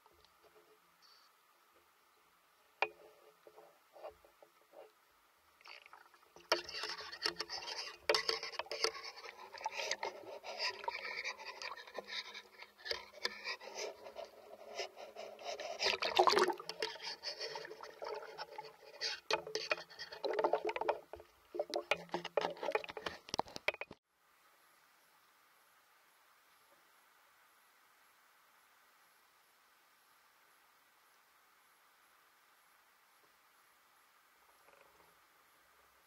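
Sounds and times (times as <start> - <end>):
water sloshing and gurgling: 5.6 - 23.5.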